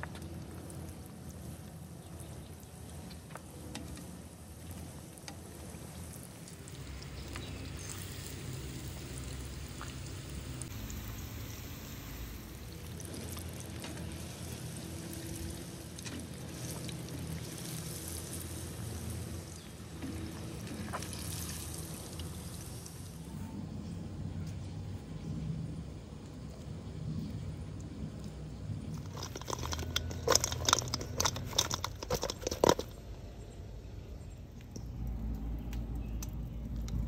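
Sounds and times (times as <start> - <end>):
hot oil bubbling and crackling: 0.0 - 24.3, 24.9 - 37.0.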